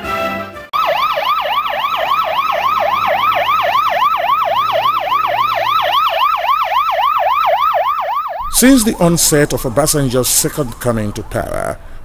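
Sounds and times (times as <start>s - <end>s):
electronic siren yelping: 0.8s - 8.7s.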